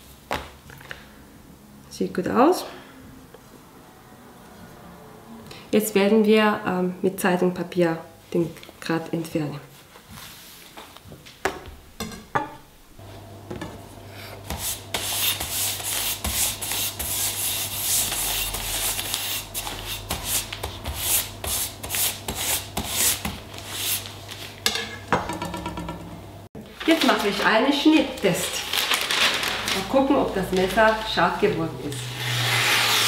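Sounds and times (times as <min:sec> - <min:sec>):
knife scraping across newspaper: 0:14.5 - 0:24.6, 0:28.7 - 0:33.0.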